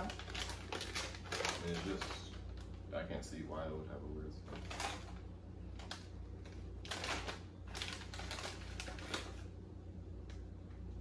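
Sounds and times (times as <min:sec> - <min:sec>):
foil chip bag crinkling: 0:00.0 - 0:02.8, 0:04.5 - 0:09.6.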